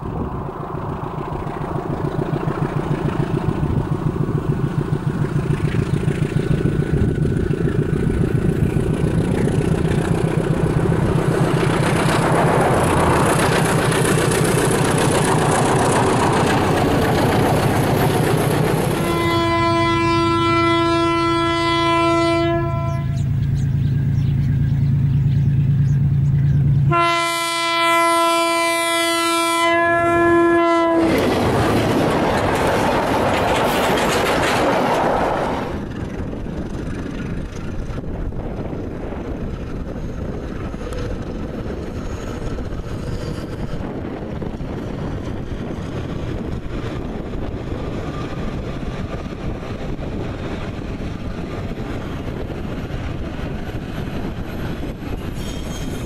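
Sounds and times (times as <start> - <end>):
diesel locomotive engine throbbing: 0.0 - 56.0
locomotive horn blast: 18.9 - 23.3, 26.9 - 31.3
wagons rumbling past: 30.2 - 38.0.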